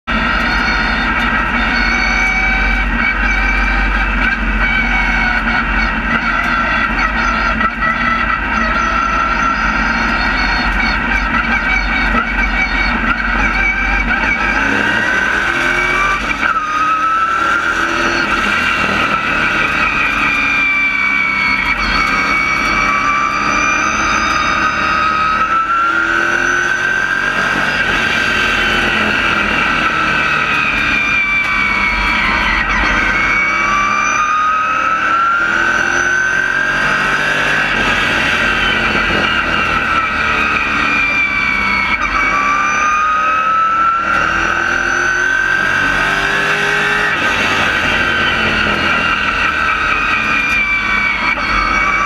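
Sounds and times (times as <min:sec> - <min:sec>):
race car engine running hard: 0:00.0 - 0:52.0.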